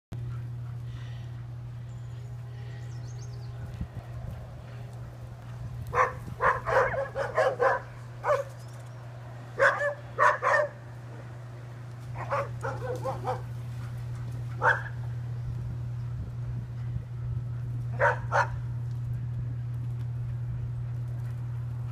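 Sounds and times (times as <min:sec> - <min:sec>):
steady low hum: 0:00.1 - 0:21.9
dogs barking: 0:04.3 - 0:08.9, 0:09.5 - 0:11.4, 0:12.0 - 0:15.2, 0:17.8 - 0:18.7.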